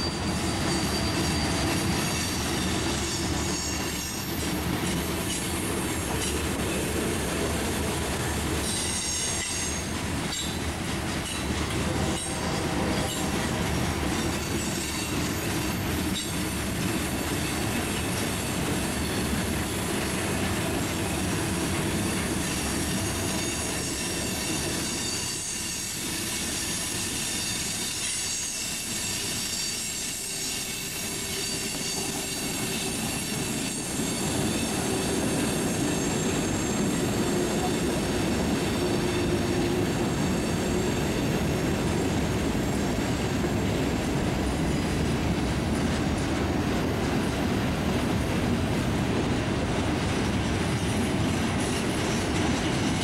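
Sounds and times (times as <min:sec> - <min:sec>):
high wheel squeals: 0:00.0 - 0:06.3, 0:08.6 - 0:16.6, 0:22.0 - 0:38.0
train wheels rumbling on rail: 0:00.0 - 0:53.0.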